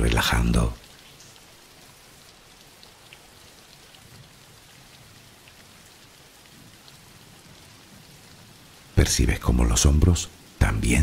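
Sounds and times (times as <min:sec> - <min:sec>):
soft steady rain: 0:00.0 - 0:11.0.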